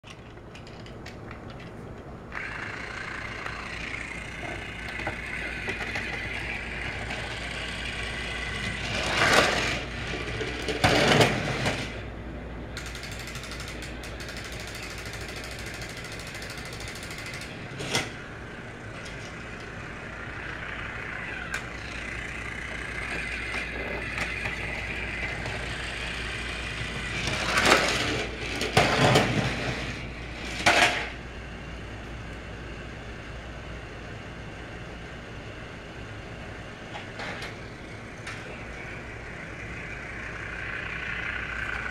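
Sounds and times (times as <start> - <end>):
toy train motor whirring: 2.3 - 12.0, 12.8 - 18.2, 19.0 - 31.1, 38.3 - 41.9
toy train clattering: 2.4 - 12.0, 12.8 - 18.2, 19.0 - 31.1.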